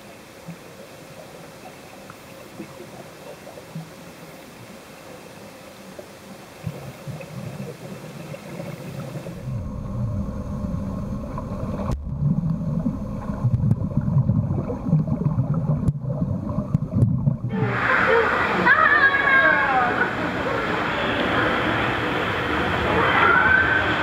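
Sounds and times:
underwater churning rumble: 6.6 - 24.0.

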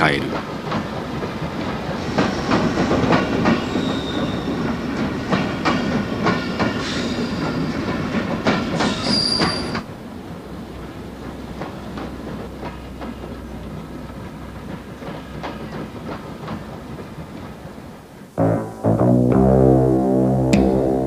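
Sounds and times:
train wheels clacking over joints: 0.0 - 18.3
train rumble: 0.0 - 18.4
high-pitched wheel squeals: 8.9 - 9.8.

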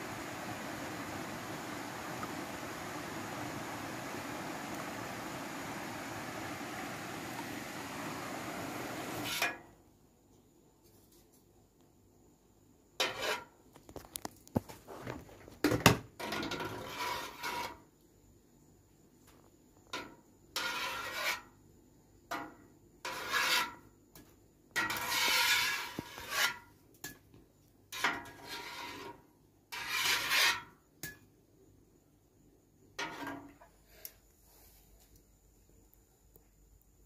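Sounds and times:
metal skimmer scraping a basin: 16.2 - 17.8, 20.0 - 21.5, 23.1 - 23.8, 24.8 - 26.7, 27.9 - 30.7.

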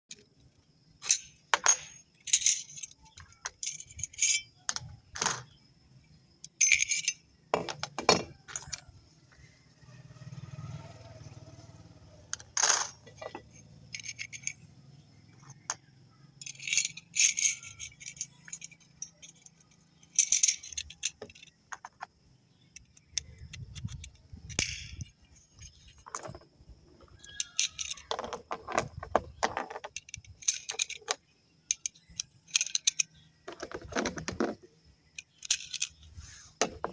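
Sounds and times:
metal cartridges clicking in magazine: 13.2 - 14.6, 15.4 - 21.6, 22.6 - 26.4, 27.1 - 28.4, 29.5 - 33.8, 35.1 - 36.1.

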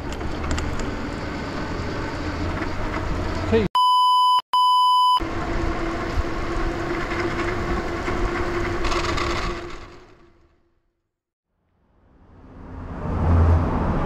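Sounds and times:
bicycle road and wind noise: 0.0 - 3.7, 5.2 - 10.5
censor bleep: 3.8 - 5.2.

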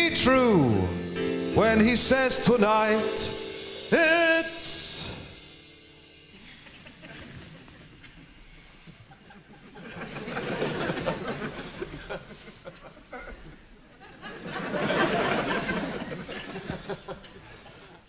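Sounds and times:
audience laughing: 6.3 - 18.0.

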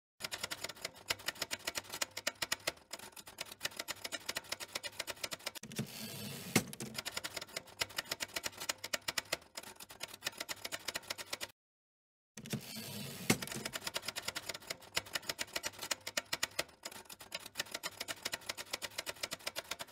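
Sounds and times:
typewriter carriage rolling: 5.6 - 7.0, 12.4 - 13.8
typewriter keys clacking: 13.3 - 19.9.

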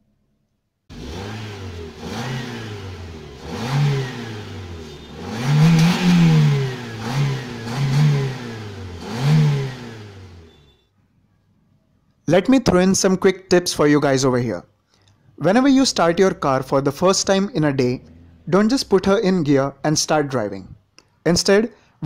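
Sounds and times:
exhaust throttle blips: 0.9 - 10.8, 15.7 - 19.7.

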